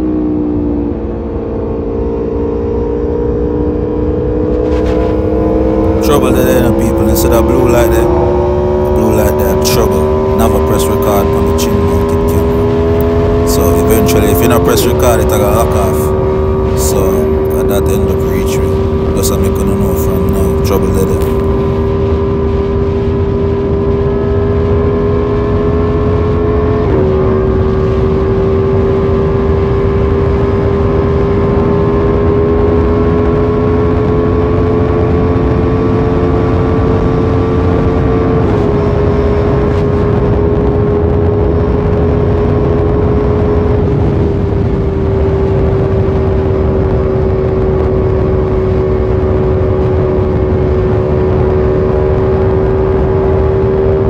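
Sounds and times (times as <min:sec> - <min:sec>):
motorcycle engine at high revs: 0:00.0 - 0:54.0
low rushing noise: 0:04.2 - 0:23.8.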